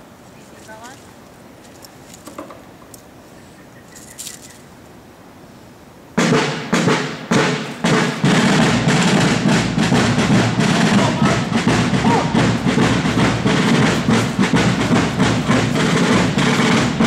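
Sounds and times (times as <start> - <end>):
drum corps drumming: 6.2 - 17.0.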